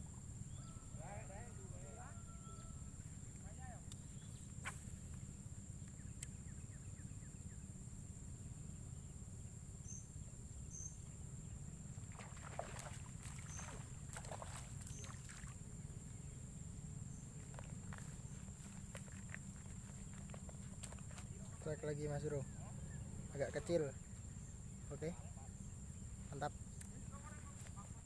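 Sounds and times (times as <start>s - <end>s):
fish thrashing and splashing: 12.1s - 15.6s
steady low rumble: 13.0s - 28.0s.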